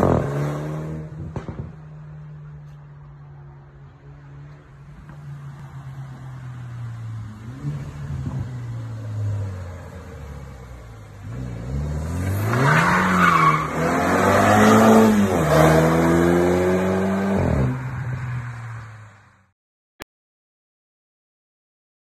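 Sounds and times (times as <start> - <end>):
car engine revving hard: 11.2 - 17.8.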